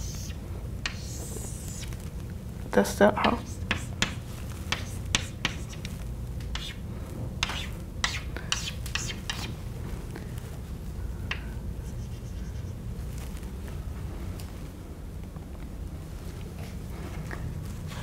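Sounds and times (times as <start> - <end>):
chalk scratching on blackboard: 0.0 - 1.9, 3.2 - 5.9, 6.5 - 6.8, 7.4 - 9.6, 11.8 - 12.8
low room hum: 0.0 - 18.0.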